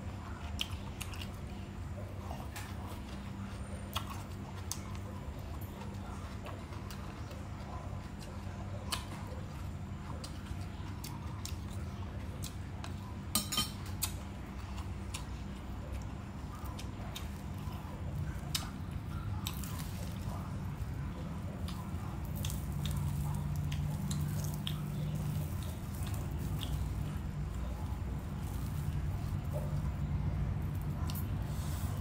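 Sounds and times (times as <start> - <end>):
steady low hum: 0.0 - 32.0
metal spoon clinking ceramic bowl: 13.4 - 13.8.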